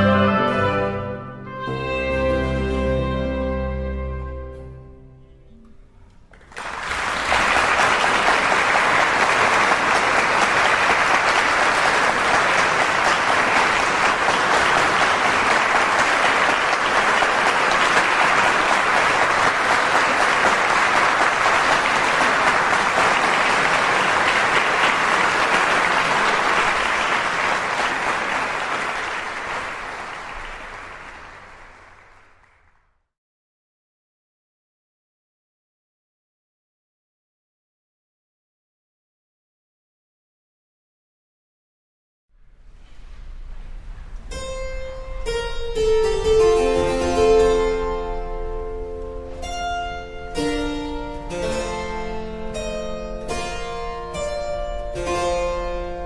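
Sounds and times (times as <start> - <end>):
music: 0.0 - 6.3, 44.3 - 56.0
audience applauding: 6.3 - 32.9.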